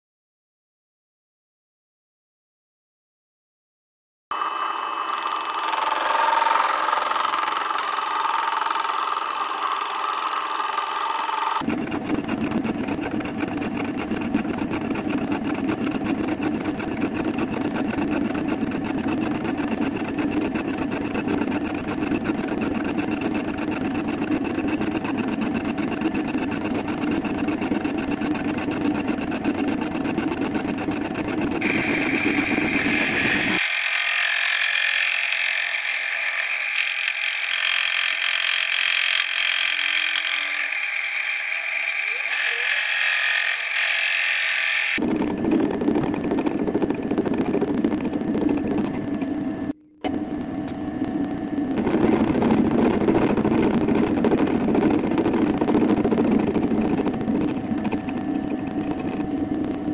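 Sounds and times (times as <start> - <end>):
metal lathe running: 4.3 - 45.0.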